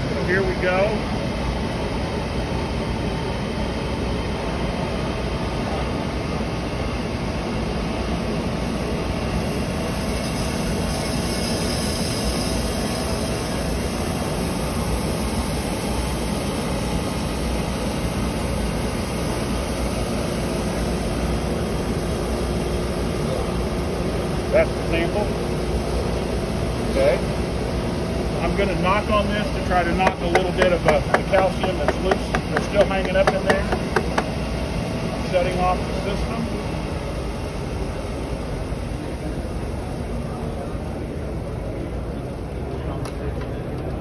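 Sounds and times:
suction fan and rushing air: 0.0s - 44.0s
bright hiss: 9.4s - 17.9s.

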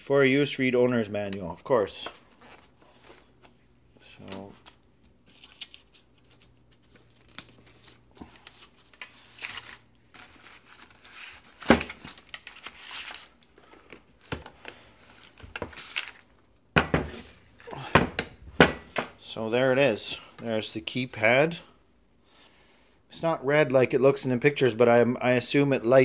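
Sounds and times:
plastic wrapping crinkling: 2.1s - 16.5s.

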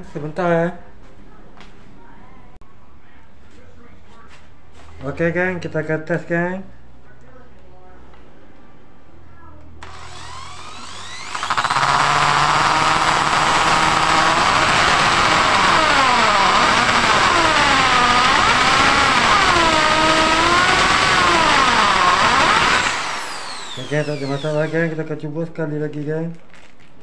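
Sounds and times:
impact drill whining under load: 9.8s - 25.0s.

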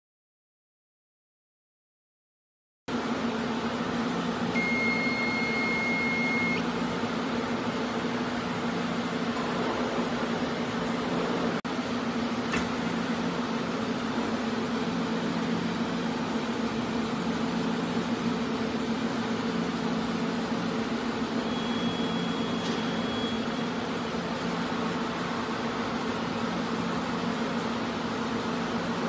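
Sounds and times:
machine running with electric hum: 2.9s - 29.0s
high beep: 4.5s - 6.6s, 21.4s - 23.7s.

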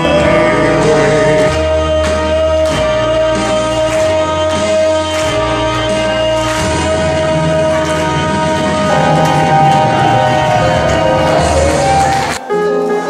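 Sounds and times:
long held note: 0.0s - 2.0s, 8.6s - 12.4s
bass line: 0.0s - 12.4s
percussion hits: 0.0s - 12.4s.

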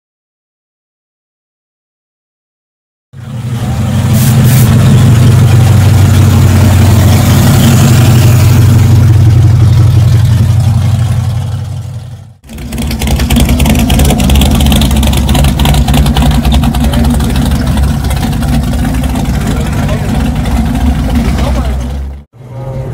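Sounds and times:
car engine droning: 3.2s - 22.9s
car engine idling with choppy exhaust: 3.2s - 22.9s.

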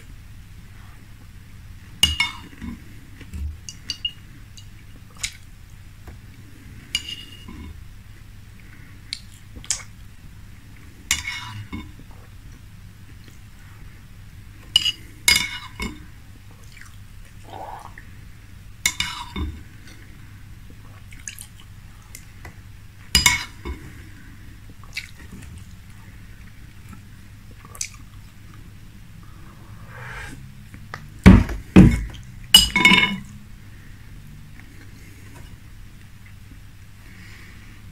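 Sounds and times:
metal spoon clinking in glass bowl: 32.6s - 33.2s.

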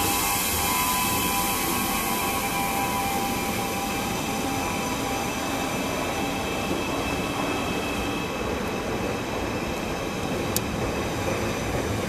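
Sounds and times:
high steady tones: 0.0s - 8.4s
train running rumble: 0.0s - 12.0s.

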